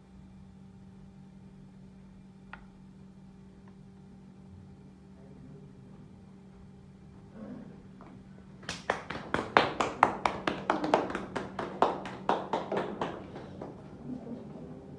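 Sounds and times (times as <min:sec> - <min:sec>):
people clapping hands: 0:08.6 - 0:14.7.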